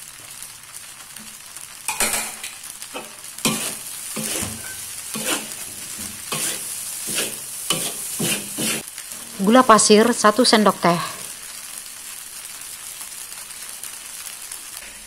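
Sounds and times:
noodles sizzling in a wok: 0.0 - 15.0
spatula scraping and tossing noodles: 3.0 - 9.6.

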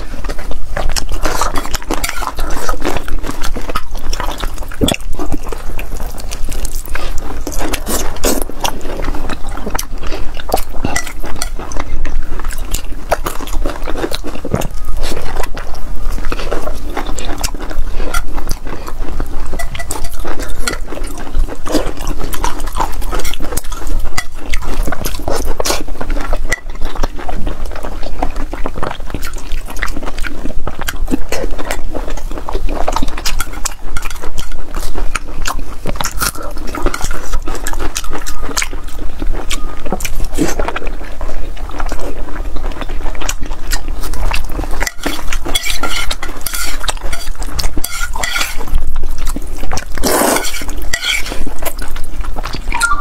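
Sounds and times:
wet chewing and smacking: 0.0 - 53.0
chopsticks clicking on metal pot: 44.8 - 48.7.

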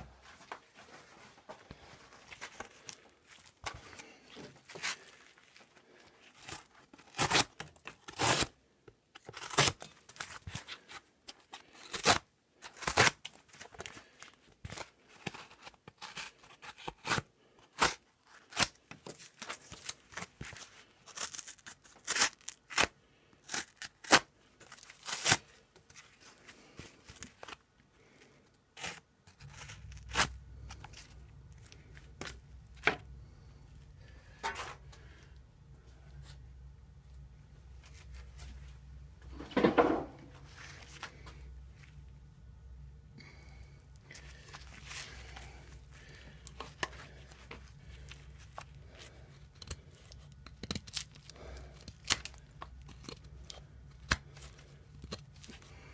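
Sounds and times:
knife cracking and tearing sheet: 6.3 - 8.5, 9.2 - 11.0, 11.6 - 13.8, 21.1 - 25.6, 28.8 - 30.4, 49.6 - 55.6.

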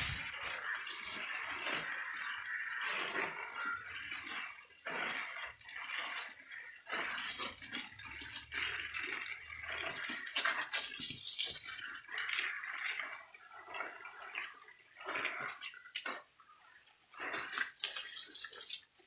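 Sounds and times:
water spraying on leaves and wall: 5.3 - 12.1, 17.2 - 19.0.

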